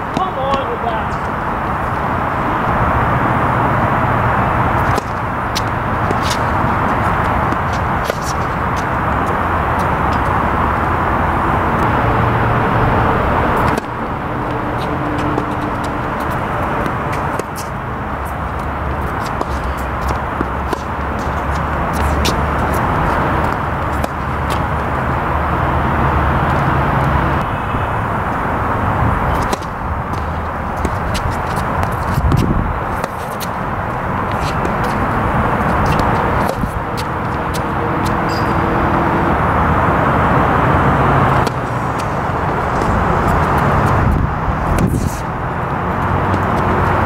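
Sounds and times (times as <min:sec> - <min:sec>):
loud rushing noise: 0:00.0 - 0:47.0
road traffic rumble: 0:00.0 - 0:47.0
tennis ball struck with rackets: 0:00.1 - 0:00.8, 0:04.7 - 0:10.9, 0:13.0 - 0:17.7, 0:18.3 - 0:24.9, 0:29.3 - 0:33.6, 0:34.3 - 0:39.0.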